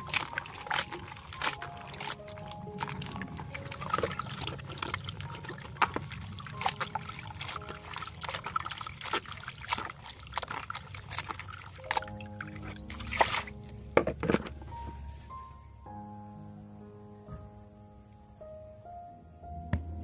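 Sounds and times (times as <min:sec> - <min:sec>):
wet squelches of kneading octopus: 0:00.0 - 0:13.8
water trickling through colander: 0:00.0 - 0:15.0
water sloshing and splashing: 0:00.0 - 0:15.4.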